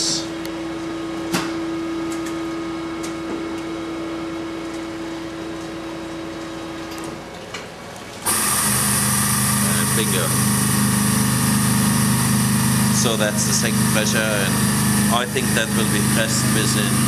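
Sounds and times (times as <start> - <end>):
machine hum: 0.0 - 17.0
motor running loudly: 8.2 - 17.0.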